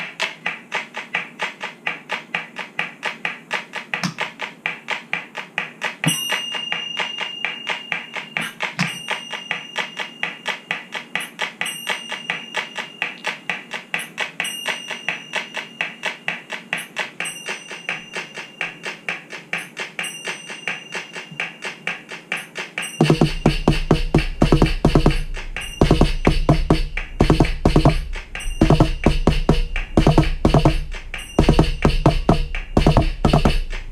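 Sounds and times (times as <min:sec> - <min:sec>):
electronic cajon rhythm: 0:00.0 - 0:06.4, 0:20.7 - 0:33.9
deep bass-heavy drum: 0:23.1 - 0:33.9.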